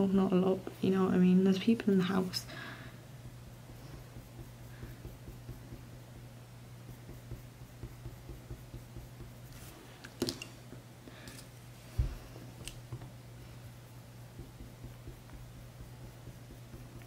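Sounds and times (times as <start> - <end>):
pencil scratching on paper: 3.2 - 9.8, 14.3 - 17.0.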